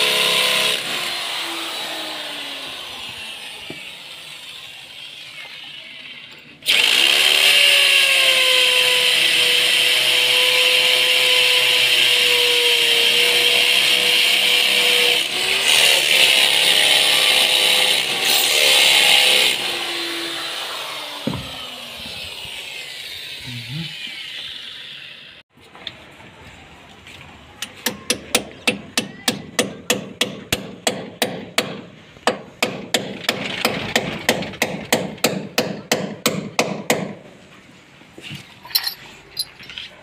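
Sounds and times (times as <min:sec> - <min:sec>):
power drill whirring: 0:00.0 - 0:15.6, 0:16.3 - 0:25.4
hammer striking metal: 0:27.8 - 0:37.2.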